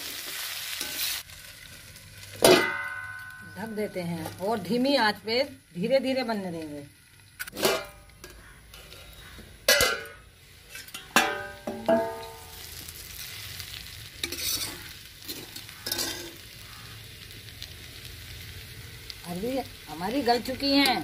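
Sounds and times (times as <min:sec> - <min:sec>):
low sizzle of frying: 0:00.0 - 0:21.0
metal clanking against iron pan: 0:02.4 - 0:04.0, 0:07.4 - 0:09.0, 0:09.6 - 0:12.5, 0:14.2 - 0:16.4
spatula scraping pan: 0:14.2 - 0:16.4.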